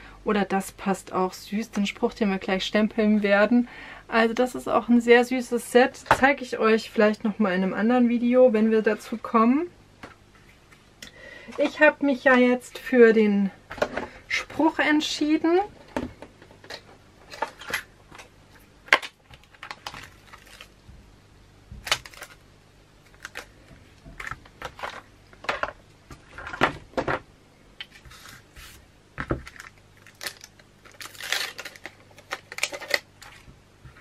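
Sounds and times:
plastic sheet rustling: 0:19.0 - 0:20.9.

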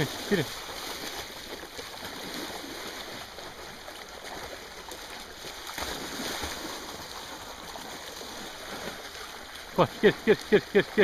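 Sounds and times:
river water rushing: 0:00.0 - 0:11.0.

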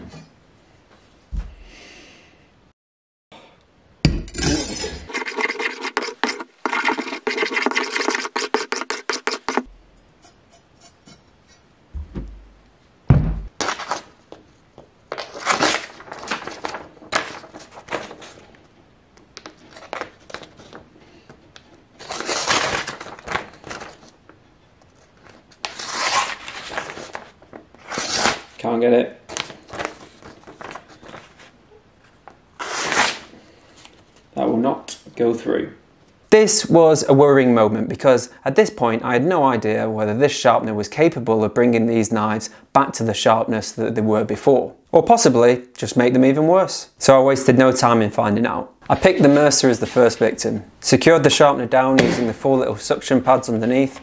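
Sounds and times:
knife rasping on brick: 0:05.1 - 0:11.7
thump: 0:12.0 - 0:12.5, 0:13.1 - 0:13.5, 0:52.0 - 0:52.3
paper crinkling and rustling: 0:15.1 - 0:18.7, 0:19.4 - 0:21.4, 0:22.0 - 0:28.6, 0:29.3 - 0:33.2.

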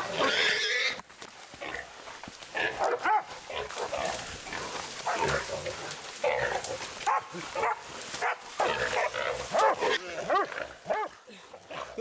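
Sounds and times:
boar squealing and grunting: 0:00.0 - 0:01.0, 0:02.6 - 0:07.7, 0:08.5 - 0:12.0
dogs barking: 0:02.7 - 0:04.1, 0:07.0 - 0:11.2.

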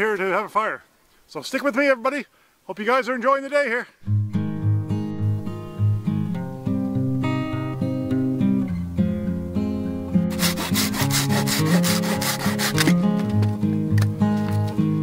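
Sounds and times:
acoustic guitar music: 0:04.0 - 0:15.0
hand saw cutting branch: 0:10.3 - 0:13.3.

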